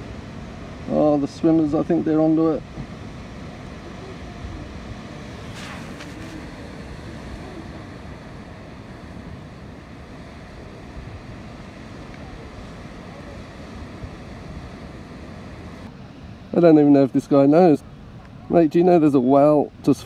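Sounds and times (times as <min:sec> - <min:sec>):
surf washing: 0:00.0 - 0:20.0
wind on microphone: 0:03.7 - 0:15.9.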